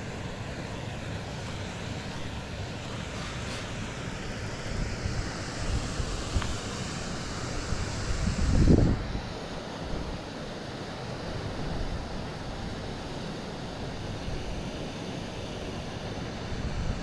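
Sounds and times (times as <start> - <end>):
wind rushing over microphone: 1.3 - 10.3, 16.2 - 17.0.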